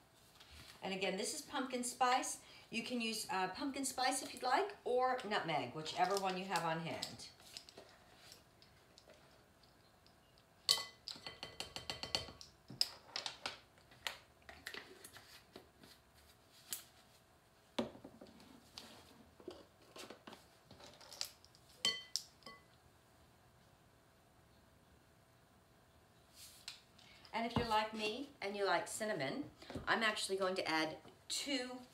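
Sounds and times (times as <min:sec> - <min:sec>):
metal spoons clinking on bowl: 0:21.8 - 0:22.7.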